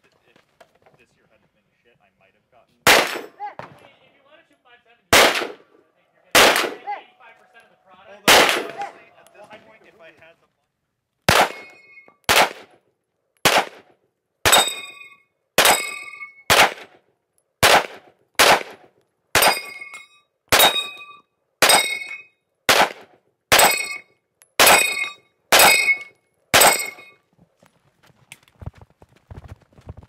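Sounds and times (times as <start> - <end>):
pistol shots: 2.8 - 3.8, 5.1 - 5.7, 6.3 - 7.0, 8.3 - 9.1, 11.3 - 12.8, 13.4 - 14.9, 15.6 - 17.0, 17.6 - 19.8, 20.5 - 21.0, 21.6 - 22.1, 22.7 - 24.0, 24.6 - 27.1
steel target clanging: 2.9 - 3.4, 6.3 - 9.2, 11.3 - 12.1, 14.5 - 16.5, 19.4 - 22.3, 23.5 - 27.2.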